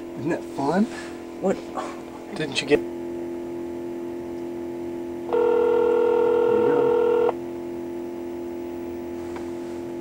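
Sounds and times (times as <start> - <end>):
constant low hum: 0.0 - 10.0
telephone ringback tone: 5.3 - 7.4.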